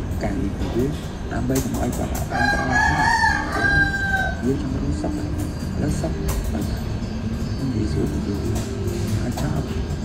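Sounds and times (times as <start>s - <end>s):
rooster crowing: 2.3s - 4.5s.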